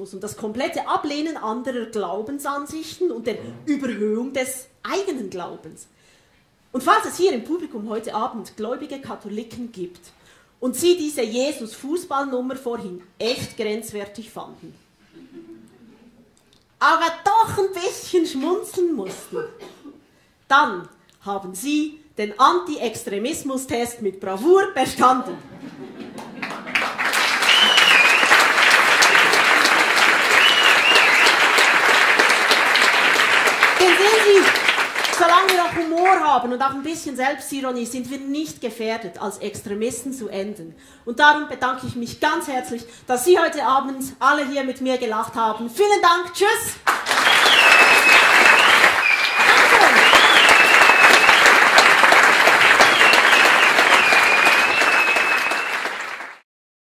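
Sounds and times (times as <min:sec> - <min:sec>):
audience clapping: 0:26.2 - 0:36.2, 0:46.8 - 0:56.4
short high whistles: 0:27.4 - 0:28.5, 0:30.2 - 0:31.6, 0:47.2 - 0:51.8, 0:52.8 - 0:55.9.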